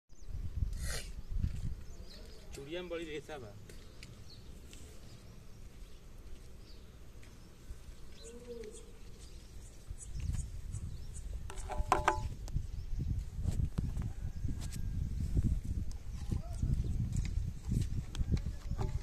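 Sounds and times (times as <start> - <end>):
faint bird chirps: 7.8 - 13.0.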